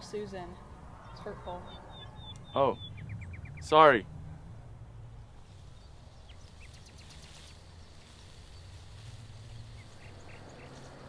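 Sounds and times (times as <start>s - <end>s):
steady low hum: 0.0s - 10.6s
high bird chirps: 1.0s - 3.8s.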